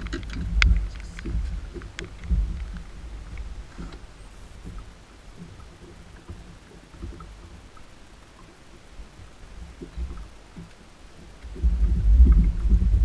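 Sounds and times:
wind buffeting microphone: 0.0s - 5.9s, 11.5s - 13.0s
faint ticks: 0.0s - 13.0s.

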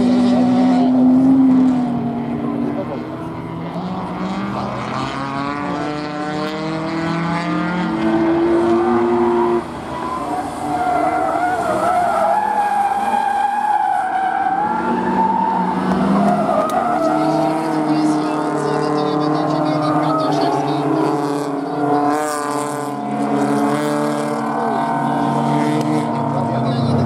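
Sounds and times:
racing car engine revving: 0.0s - 27.0s
tyres squealing: 8.8s - 22.1s.

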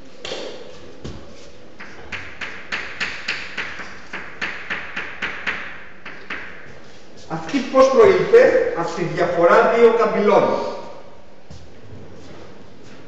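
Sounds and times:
chalk tapping on a board: 1.8s - 6.8s.

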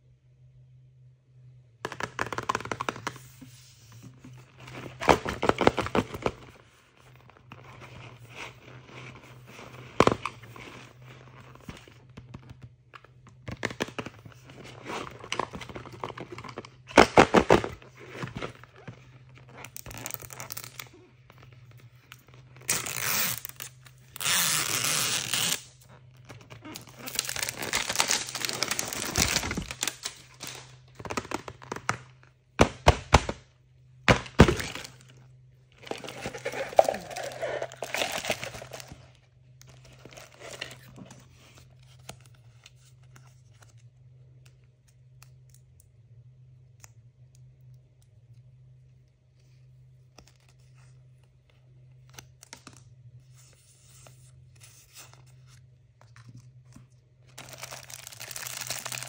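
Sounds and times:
wrapping tearing and crinkling: 13.3s - 32.3s, 34.1s - 43.8s, 52.0s - 59.0s
plastic packaging taps and knocks: 32.6s - 33.4s, 34.0s - 34.9s.

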